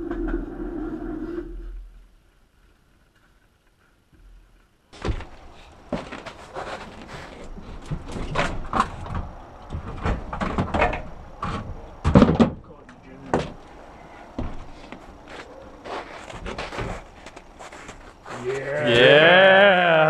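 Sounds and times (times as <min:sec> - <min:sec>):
bicycle knocking against wooden shed: 0:05.0 - 0:13.7.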